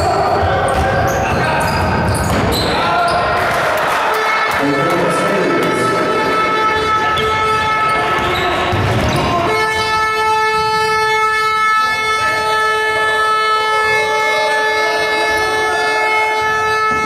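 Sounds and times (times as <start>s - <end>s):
basketball bouncing on gym floor: 0.0s - 2.8s, 7.2s - 10.6s
steady horn-like tone: 4.1s - 8.2s.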